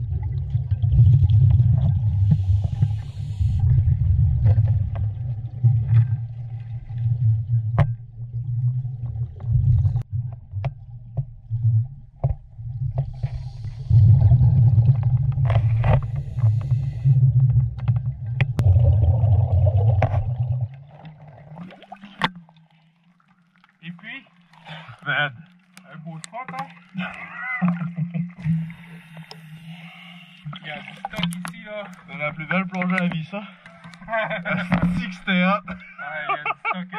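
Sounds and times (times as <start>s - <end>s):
muffled underwater rumble: 0.0s - 22.6s.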